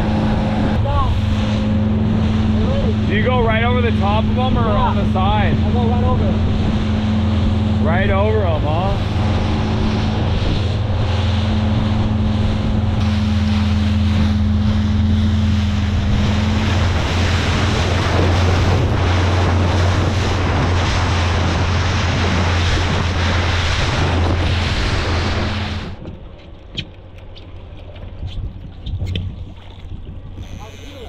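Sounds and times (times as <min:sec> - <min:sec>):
motorboat engine humming: 0:00.0 - 0:31.0
water rushing past hull: 0:00.0 - 0:31.0
wind buffeting microphone: 0:00.0 - 0:31.0.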